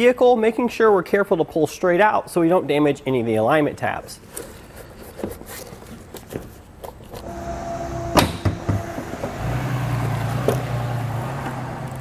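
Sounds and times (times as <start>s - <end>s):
low mechanical hum: 5.9s - 12.0s.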